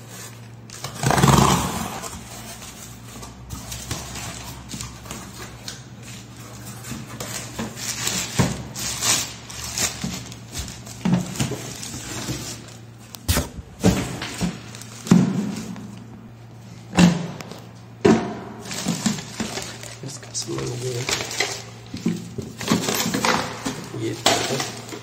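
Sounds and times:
cardboard tearing rip: 0.7 - 2.4
plastic wrapping rustling: 2.0 - 16.9, 18.6 - 25.0.

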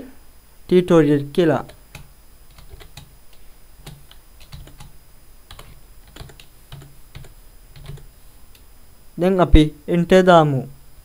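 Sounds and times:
typing on computer keyboard: 1.6 - 3.1, 3.8 - 8.1.

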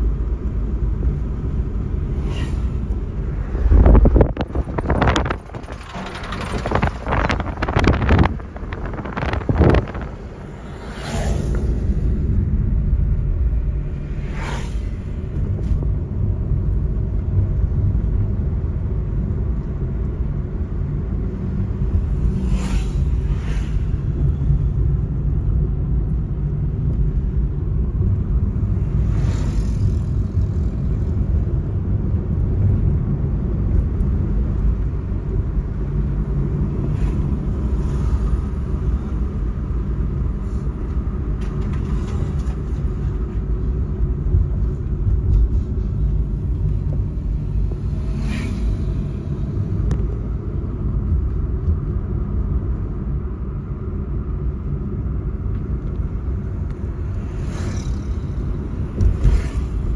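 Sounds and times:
vehicle engine and tyre rumble: 0.0 - 59.9
wind buffeting microphone: 1.7 - 10.7
brief whooshes: 2.1 - 4.1, 10.0 - 12.1, 13.9 - 15.4.

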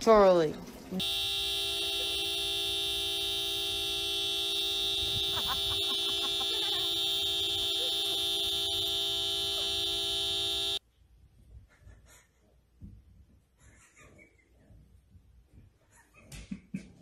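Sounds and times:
car horn blast: 1.0 - 10.8.

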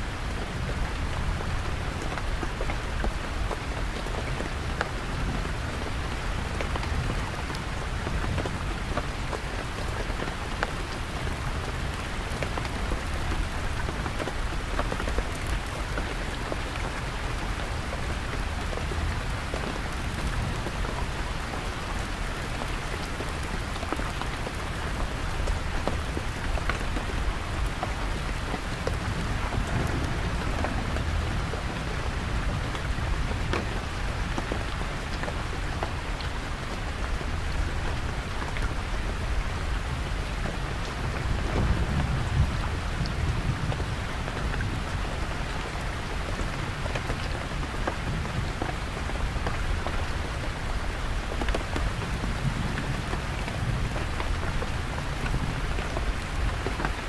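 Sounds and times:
heavy rain on a tent: 0.0 - 57.0
distant thunder rumble: 27.4 - 34.3, 41.0 - 44.1.

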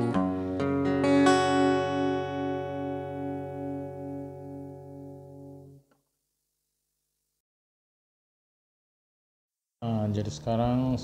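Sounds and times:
guitar chord ringing: 0.0 - 6.0
plucked guitar notes: 0.0 - 6.0.

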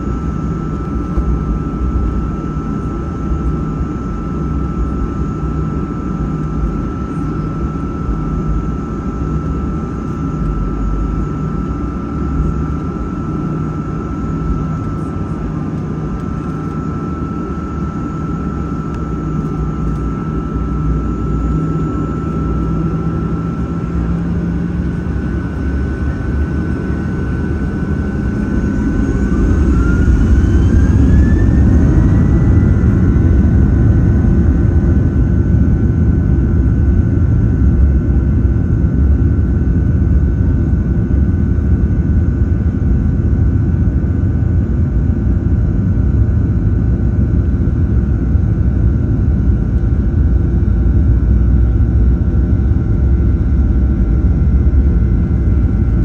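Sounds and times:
jet engines spooling up: 11.9 - 37.4.

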